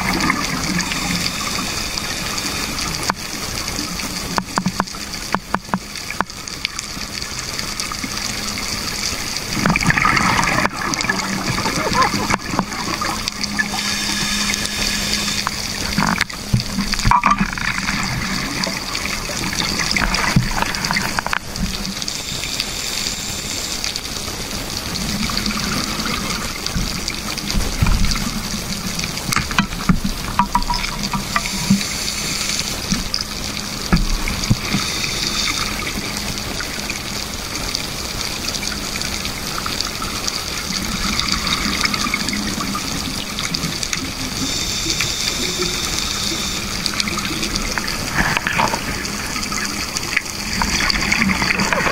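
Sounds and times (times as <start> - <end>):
underwater water noise: 0.0 - 51.9
bubbling exhaled air: 9.5 - 37.1, 39.8 - 51.9.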